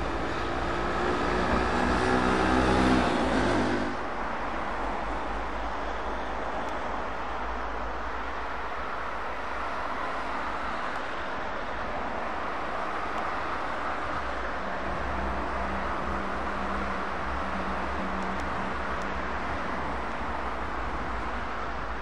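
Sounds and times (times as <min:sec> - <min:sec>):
passing cars: 0:00.0 - 0:22.0
truck diesel engine hum: 0:00.0 - 0:22.0.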